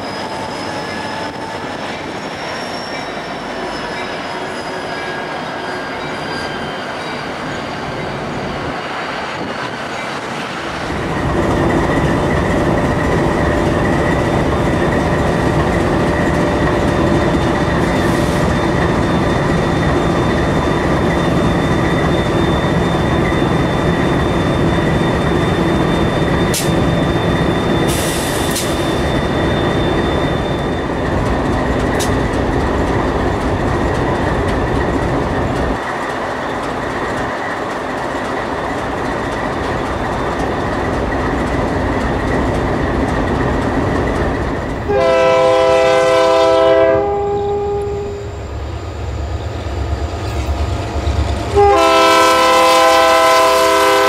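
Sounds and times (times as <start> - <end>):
high wheel squeal: 0.0 - 10.9, 11.5 - 36.1
diesel locomotives rumbling: 0.0 - 54.0.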